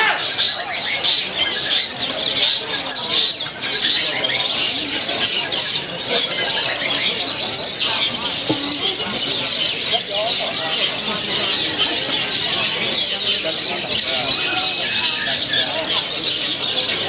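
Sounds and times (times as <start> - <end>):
chorus of birds chirping and trilling: 0.0 - 17.0.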